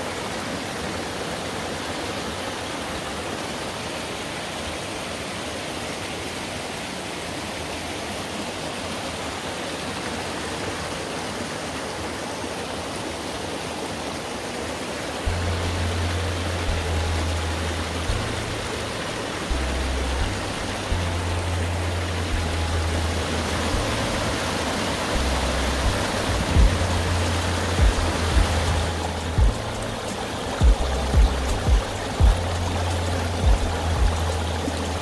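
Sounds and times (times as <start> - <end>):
stream water rushing: 0.0 - 35.0
low bass line music: 15.3 - 35.0.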